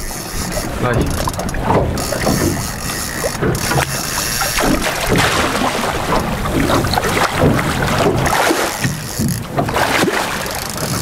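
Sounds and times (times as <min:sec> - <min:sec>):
water splashing against boat: 0:00.0 - 0:11.0
wind buffeting microphone: 0:00.0 - 0:11.0.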